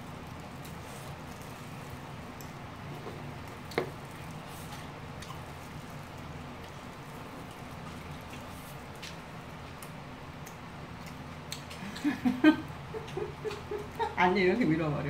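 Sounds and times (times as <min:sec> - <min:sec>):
low room hum: 0:00.0 - 0:15.0
wet chewing mouth sounds: 0:00.3 - 0:12.0.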